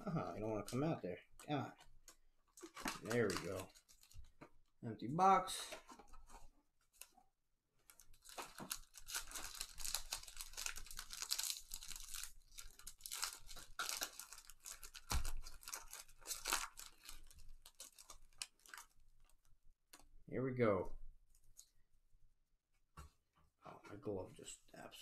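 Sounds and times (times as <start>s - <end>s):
foil wrapper tearing and crinkling: 2.6s - 4.2s, 7.9s - 19.4s.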